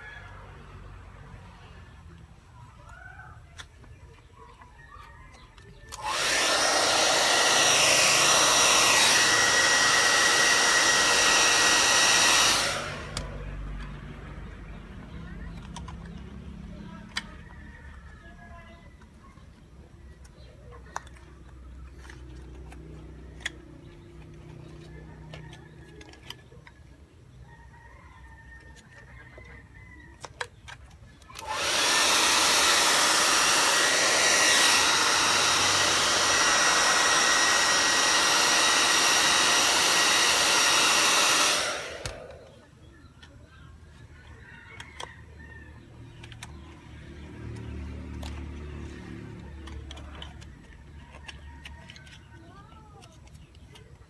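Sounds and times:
hair dryer blowing: 5.9 - 13.5, 31.4 - 42.7.

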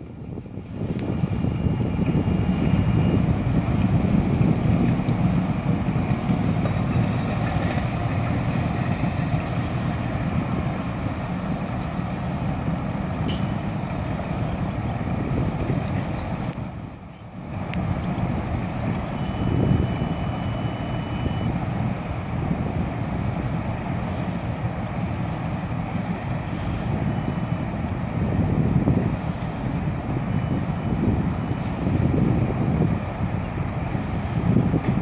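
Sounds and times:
wind on microphone: 0.0 - 35.0
outboard motor running: 0.8 - 16.9.

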